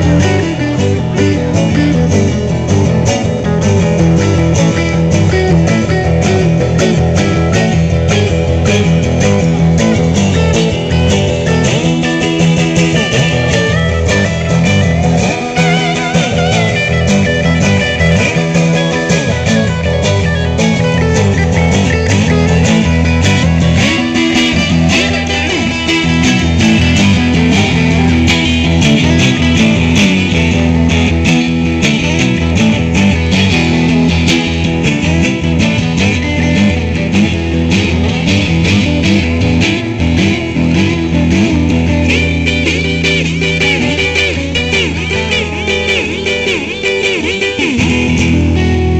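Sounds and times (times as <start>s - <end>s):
steady low end: 0.0s - 45.9s
electric guitar lead lines: 0.0s - 48.9s
strummed rhythm guitar: 0.0s - 48.9s.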